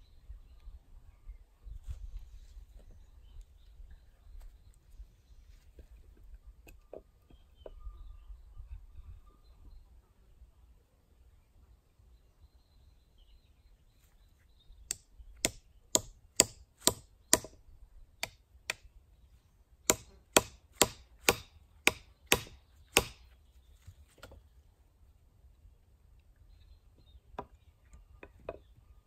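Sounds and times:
axe chopping wood: 0:14.9 - 0:17.6, 0:19.8 - 0:23.2.

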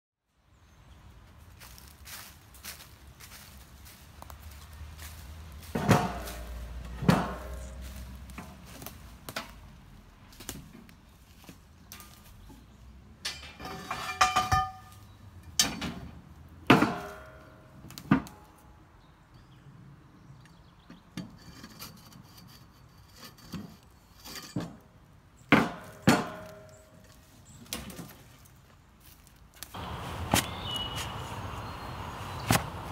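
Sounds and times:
scrap metal clanking: 0:05.6 - 0:09.6, 0:11.9 - 0:16.1, 0:16.7 - 0:17.6, 0:21.2 - 0:24.8, 0:25.5 - 0:28.3.

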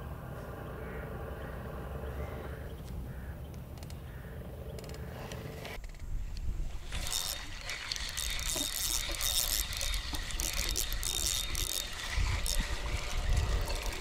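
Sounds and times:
fishing reel gears whirring and clicking: 0:06.6 - 0:14.0.

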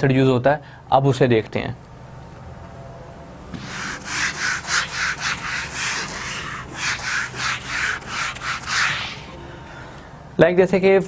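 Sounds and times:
duster rubbing on whiteboard: 0:03.6 - 0:09.4.

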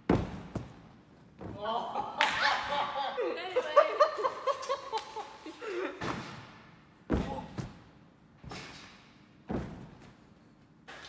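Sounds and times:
trampoline bed thumping: 0:00.0 - 0:01.8, 0:06.0 - 0:10.2.

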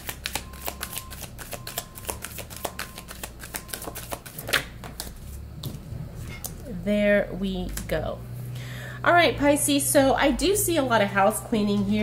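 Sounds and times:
cards being shuffled: 0:00.0 - 0:05.8.

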